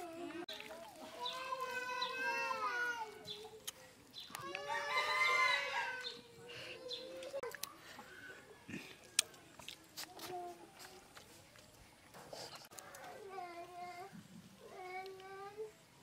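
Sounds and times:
rooster crowing: 4.6 - 6.1.

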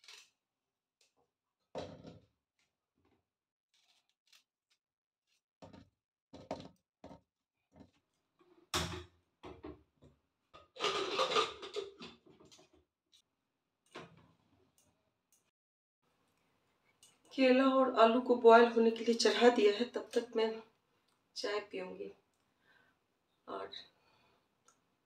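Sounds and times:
clatter and scraping: 10.6 - 12.7.

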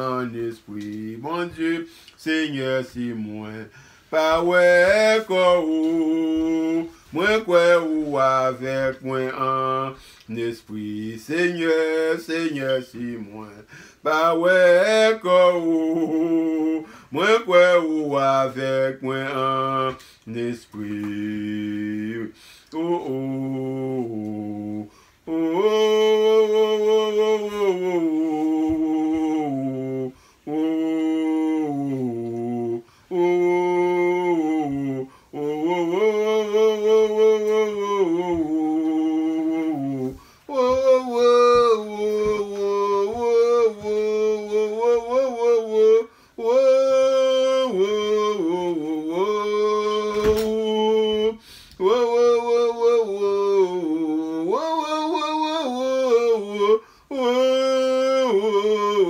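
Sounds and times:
man singing unaccompanied: 0.0 - 59.0.

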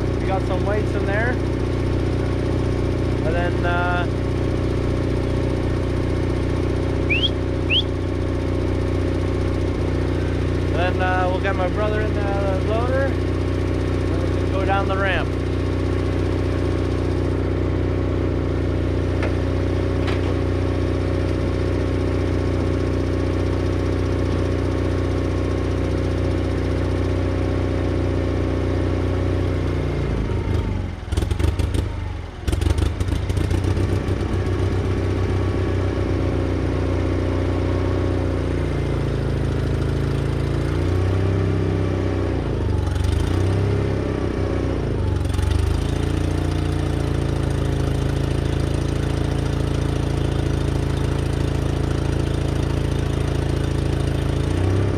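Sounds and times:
engine idling: 0.0 - 54.9
clatter: 19.1 - 21.5, 30.5 - 34.8.

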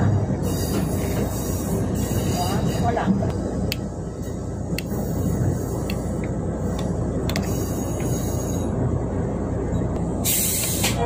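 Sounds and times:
train rumbling: 0.0 - 11.0
sharp hiss: 10.2 - 11.0.

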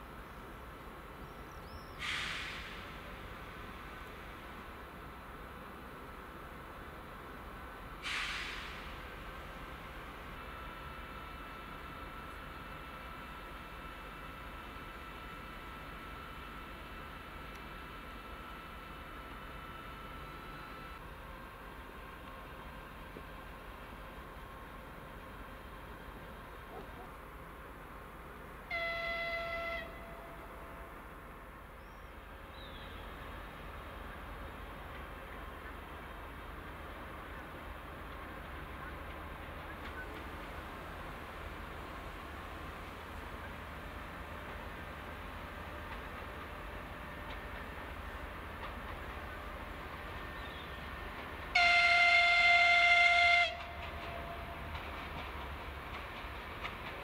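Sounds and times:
locomotive horn blast: 28.7 - 31.0, 51.5 - 54.6.

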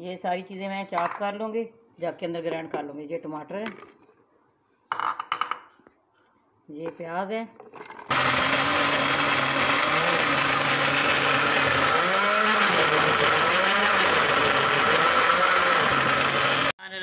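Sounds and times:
electric blender grinding: 8.1 - 16.8.

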